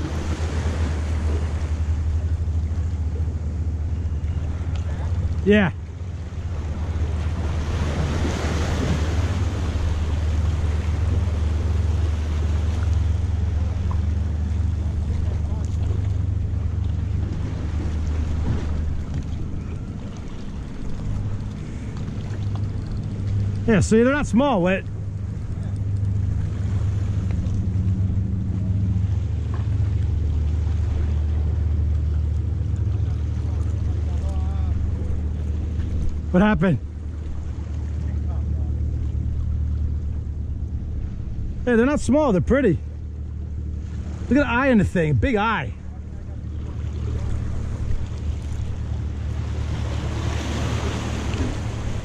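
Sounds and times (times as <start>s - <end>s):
waves washing against rocks: 0.0s - 2.1s, 46.7s - 52.0s
wind rumbling on microphone: 0.0s - 24.0s
motorboat engine humming: 0.0s - 52.0s.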